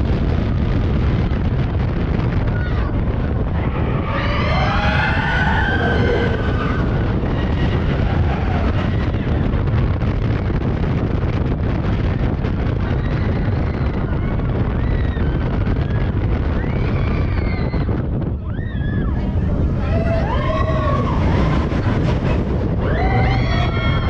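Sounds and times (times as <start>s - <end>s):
low rumble: 0.0s - 24.0s
roller coaster on track: 0.0s - 24.0s
wind on microphone: 0.0s - 24.0s
riders screaming: 3.6s - 9.6s, 16.6s - 24.0s.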